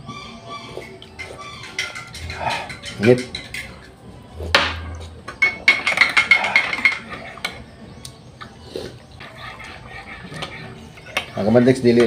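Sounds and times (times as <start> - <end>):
spoons clinking against dishes: 0.8 - 7.7, 9.2 - 12.0
metal spoon clinking in a mug: 1.6 - 3.9.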